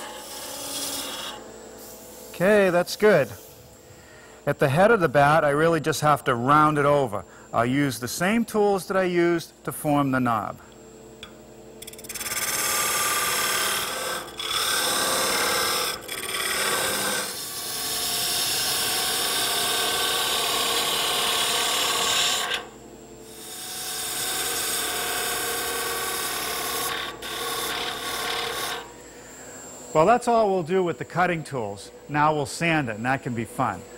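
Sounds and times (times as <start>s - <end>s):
lathe tool scraping wood: 0.0s - 1.4s, 11.8s - 22.7s, 23.3s - 28.9s.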